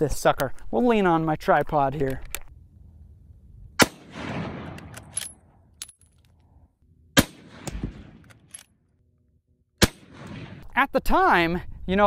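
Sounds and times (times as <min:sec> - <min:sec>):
rifle shots with echo: 0:03.8 - 0:05.5, 0:07.2 - 0:08.6, 0:09.8 - 0:10.6
rifle bolt clicking: 0:04.7 - 0:06.4, 0:07.6 - 0:08.7.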